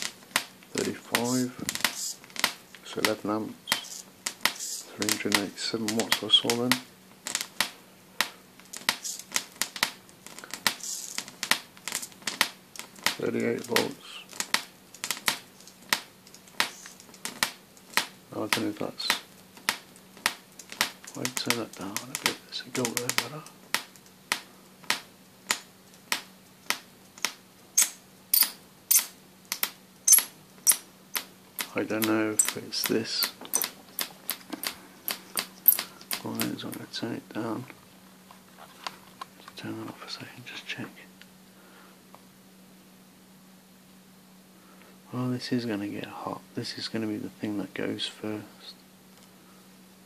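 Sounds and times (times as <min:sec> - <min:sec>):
sharp electric snaps: 0:00.0 - 0:37.0
electric arc crackling and hissing: 0:00.0 - 0:41.2
faint steady hum: 0:00.0 - 0:50.0.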